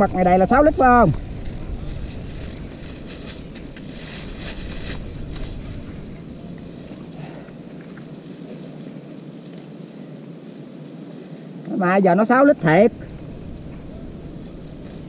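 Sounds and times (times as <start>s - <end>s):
wind noise on microphone: 0.0s - 8.2s, 12.5s - 15.0s.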